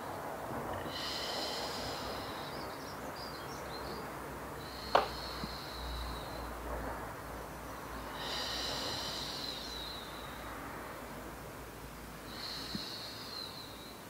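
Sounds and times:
woman breathing out: 0.8 - 2.8, 4.6 - 6.6, 7.9 - 10.7, 12.2 - 13.9.

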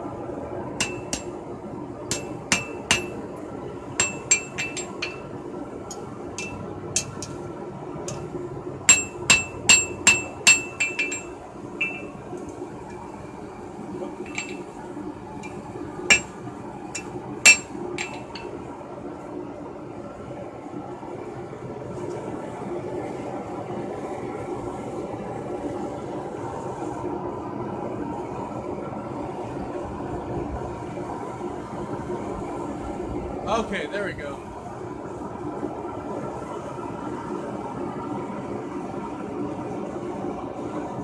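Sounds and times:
steady low hum: 0.0 - 41.0
hammer striking steel on anvil: 0.8 - 1.4, 2.1 - 3.2, 4.0 - 5.3, 5.9 - 7.4, 8.9 - 12.2, 14.3 - 14.7, 15.4 - 16.4, 17.0 - 18.5.

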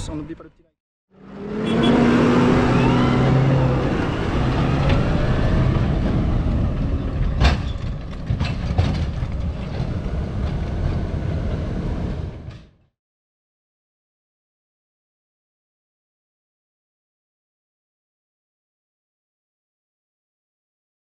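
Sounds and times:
tractor engine: 1.6 - 12.6
wheels and spreader rattling: 4.7 - 12.8.

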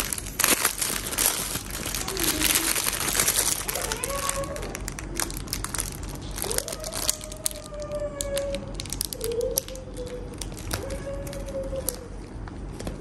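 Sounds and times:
plastic packaging crinkling: 0.0 - 12.2.

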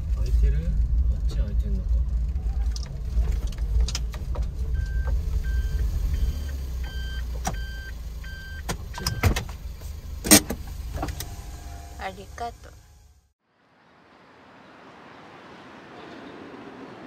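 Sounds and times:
van engine running: 0.0 - 13.3
high electronic beeps: 4.8 - 8.6.

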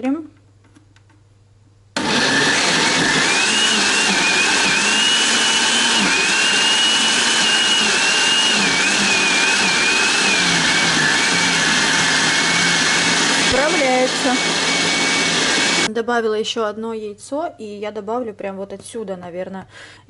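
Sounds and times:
blender motor whining: 2.0 - 15.9.

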